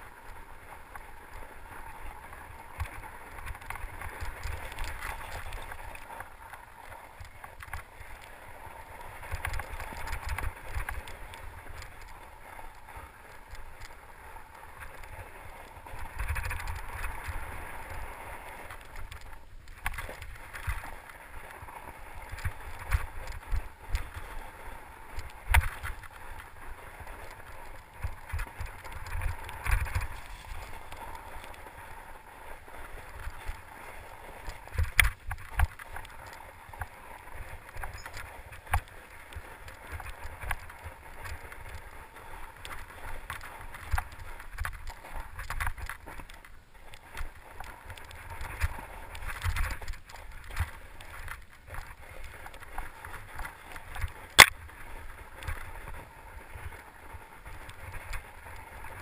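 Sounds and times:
bike tyre and ride noise: 0.0s - 59.0s.

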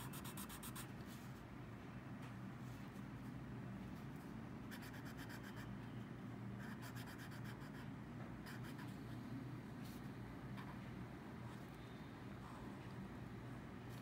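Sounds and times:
pen scratching on paper: 0.0s - 0.9s, 6.6s - 7.8s
low background hum: 0.0s - 14.0s.

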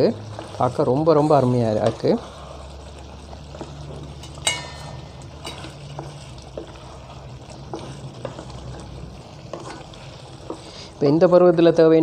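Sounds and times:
wooden spoon stirring thick curry: 0.0s - 12.0s
spoon knocking on pot: 3.6s - 6.8s.

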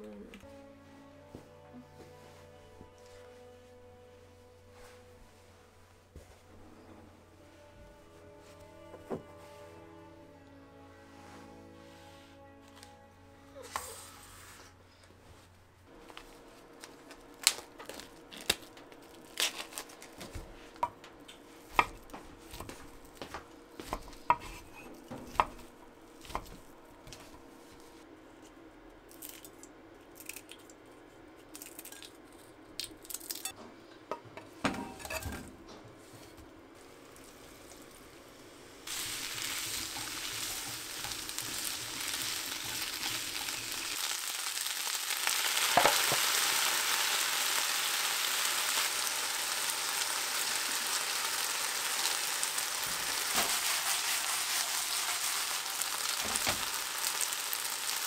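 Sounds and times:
noodles sizzling in frying pan: 16.1s - 27.9s, 36.1s - 58.0s
knife on wooden cutting board: 23.8s - 27.3s.

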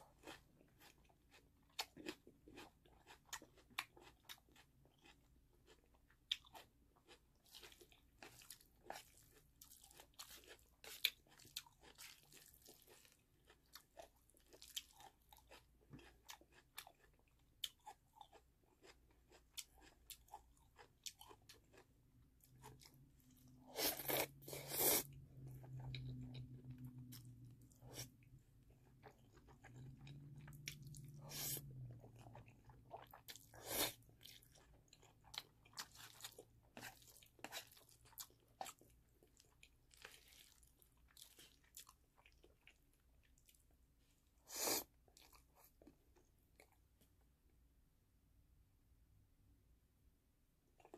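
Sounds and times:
close chewing with wet clicks: 0.1s - 23.6s, 25.1s - 43.7s
low steady hum: 20.4s - 37.5s
slurping noodles: 23.7s - 25.2s.

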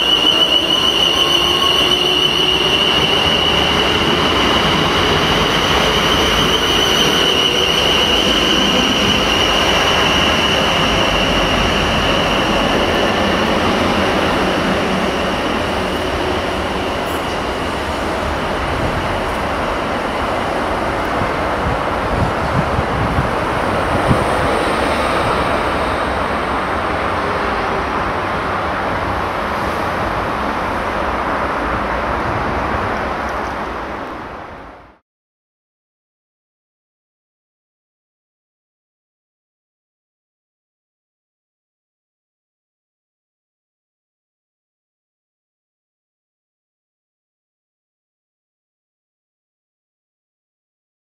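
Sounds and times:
electric train pulling away: 0.0s - 30.8s.

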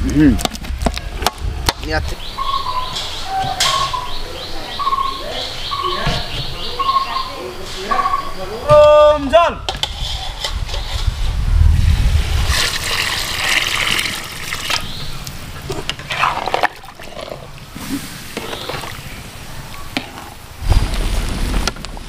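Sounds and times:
water pouring and splashing: 11.8s - 22.0s.

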